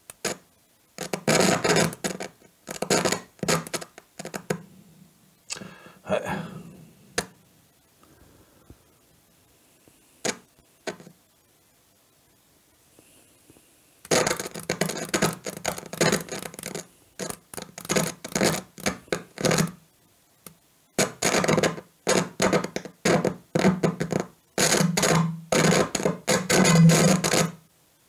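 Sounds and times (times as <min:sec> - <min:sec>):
audio crackling and spitting: 0:05.5 - 0:07.4, 0:13.0 - 0:19.8.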